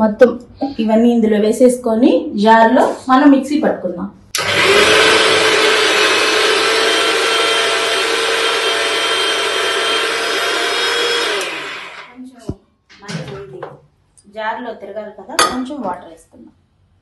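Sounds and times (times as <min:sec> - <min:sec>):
mixer grinder running: 0:04.4 - 0:12.2.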